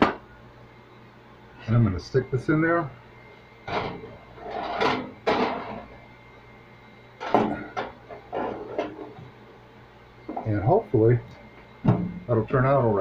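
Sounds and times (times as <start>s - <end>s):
oven rack sliding: 3.7s - 5.8s
oven door and rack clunks: 11.8s - 12.2s.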